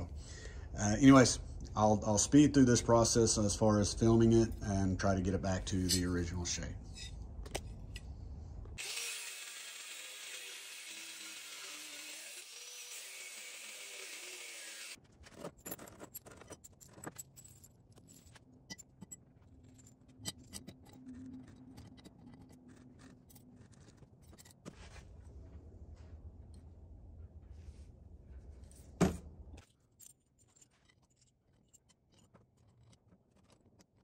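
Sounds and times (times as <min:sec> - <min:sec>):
angle grinder cutting steel: 0:08.8 - 0:15.0.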